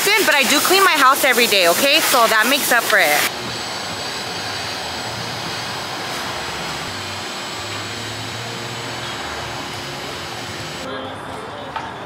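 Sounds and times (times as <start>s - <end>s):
car wash machinery rushing: 0.0s - 10.9s.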